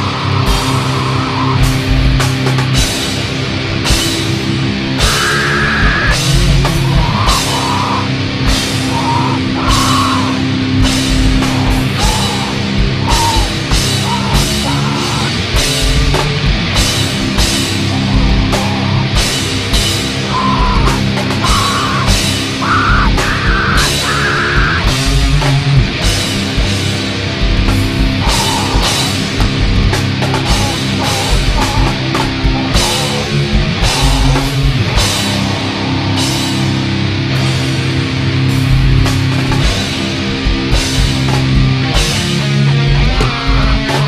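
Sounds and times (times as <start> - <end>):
bass guitar: 0.0 - 44.0
drum kit with cymbal hits: 0.0 - 44.0
electric guitar: 0.0 - 44.0
high held notes: 5.0 - 25.3.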